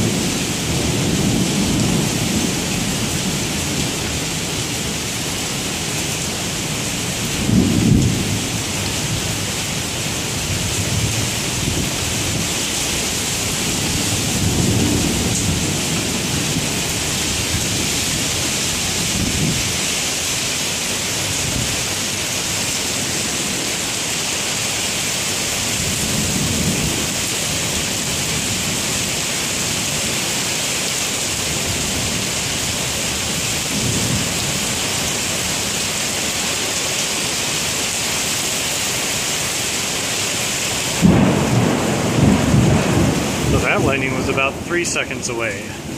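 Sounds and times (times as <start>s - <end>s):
heavy rain on pavement and car: 0.0s - 45.9s
thunder rumbling: 7.3s - 9.4s, 10.2s - 19.7s, 41.0s - 45.9s.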